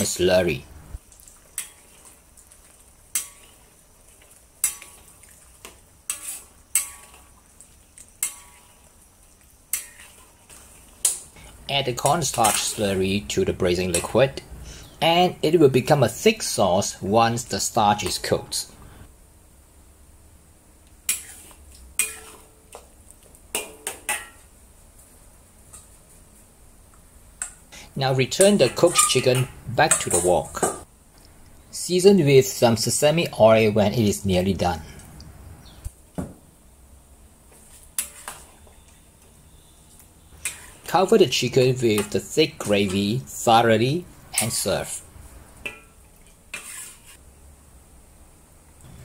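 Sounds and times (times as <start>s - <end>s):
faint sizzle: 0.0s - 49.0s
metal spatula scraping a wok: 3.1s - 7.4s, 8.1s - 8.9s, 9.7s - 15.0s, 21.1s - 22.6s, 27.8s - 30.7s, 37.6s - 38.6s, 40.3s - 47.2s.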